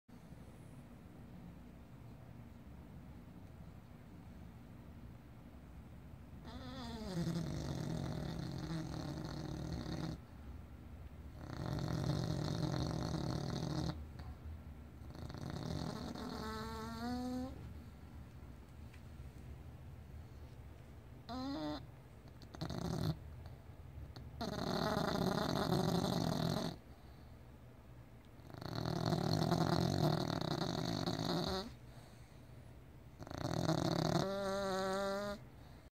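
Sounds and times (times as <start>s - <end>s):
dog snoring: 6.4s - 10.3s, 11.3s - 14.3s, 15.0s - 17.6s, 21.2s - 27.2s, 28.4s - 32.4s, 33.2s - 35.9s.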